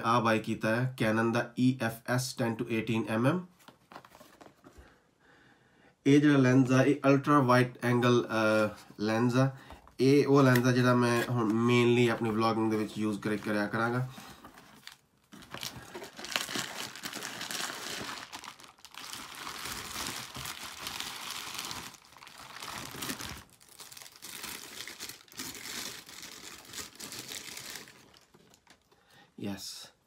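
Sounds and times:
bubble wrap crinkling: 10.4 - 28.9.

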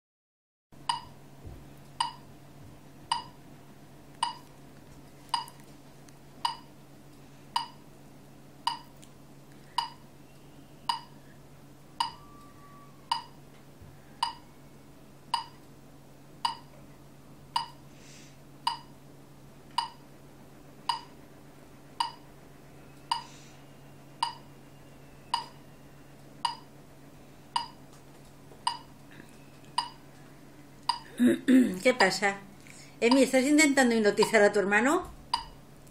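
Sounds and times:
low steady hum: 0.8 - 35.9
sharp ringing ticks: 0.9 - 1.1, 2.0 - 2.2, 3.1 - 3.4, 7.6 - 7.8, 8.6 - 8.9, 10.9 - 11.1, 12.0 - 12.2, 13.1 - 13.4, 14.2 - 14.4, 15.3 - 15.6, 16.4 - 16.7, 17.6 - 17.8, 18.7 - 18.9, 20.9 - 21.1, 22.0 - 22.2, 23.0 - 23.3, 24.2 - 24.4, 25.3 - 25.6, 26.4 - 26.7, 27.6 - 27.8.

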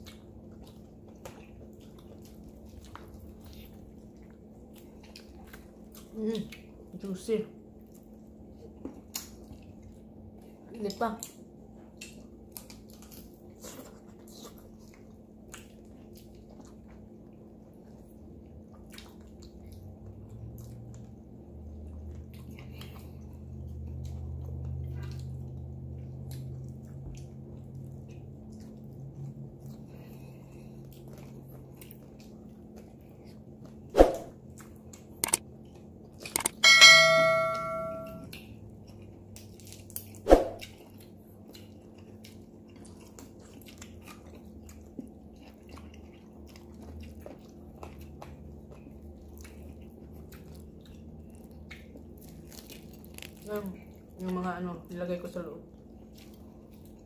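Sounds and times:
faint eating sounds: 0.0 - 57.0
low steady hum: 0.0 - 57.0
metallic ringing clang: 36.5 - 38.3.

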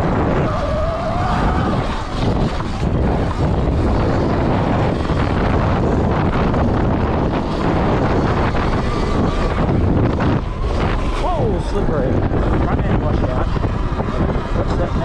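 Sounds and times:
electric motor whine: 0.0 - 15.0
wind over microphone: 0.0 - 15.0.

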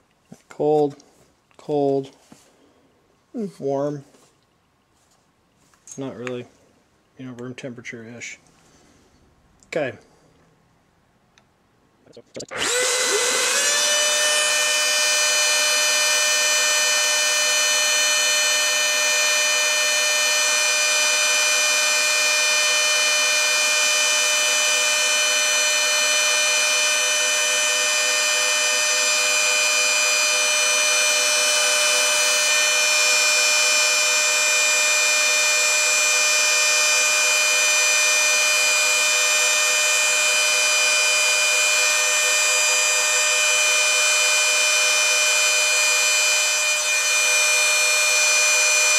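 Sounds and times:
trim routers whining: 12.5 - 48.9.

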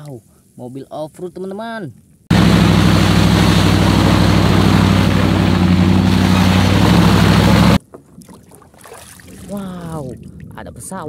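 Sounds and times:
off-road vehicle engine droning: 2.3 - 7.8.

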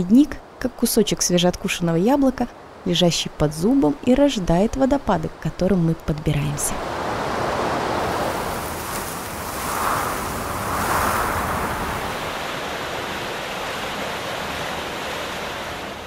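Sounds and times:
rushing meltwater: 6.5 - 16.0.

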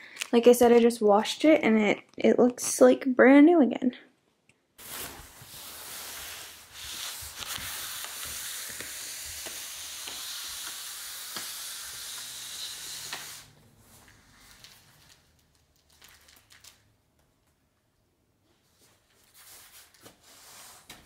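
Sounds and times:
steady hissing noise: 4.8 - 15.3.

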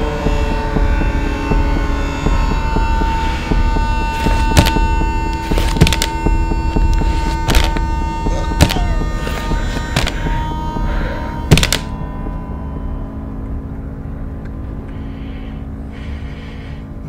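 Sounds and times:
sharp percussive hits: 0.0 - 13.0
sustained high tone: 0.0 - 15.0
dark droning hum: 0.0 - 17.0.

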